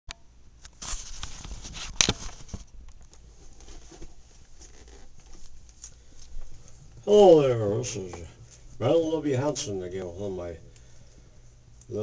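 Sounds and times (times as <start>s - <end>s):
camcorder handling rustle: 0.6s - 6.3s.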